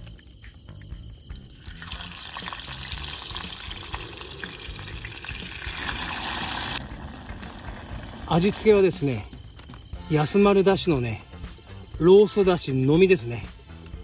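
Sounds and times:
garlic sizzling in oil: 1.6s - 8.3s.

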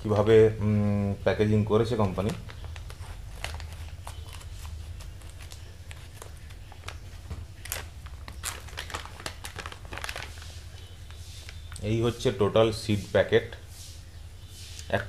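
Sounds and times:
plastic pouch crinkling: 1.9s - 11.8s.

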